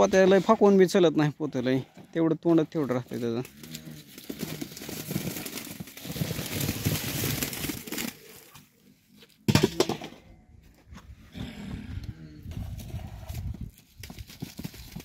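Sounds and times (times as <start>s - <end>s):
onions tumbling into a sack: 3.6s - 8.8s.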